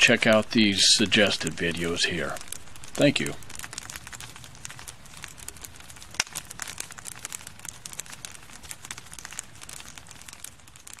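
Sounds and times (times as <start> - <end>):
wood fire crackling: 0.0 - 11.0.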